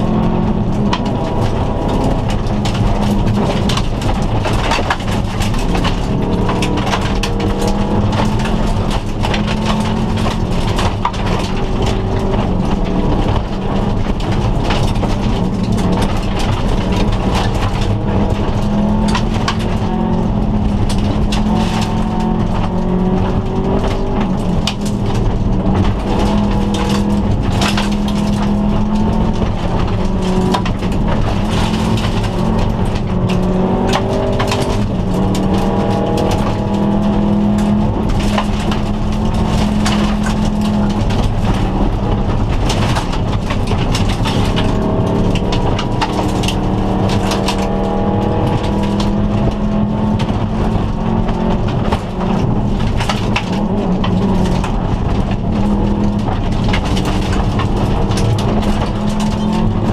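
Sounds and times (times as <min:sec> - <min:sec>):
car engine revving through gears: 0:00.0 - 0:59.9.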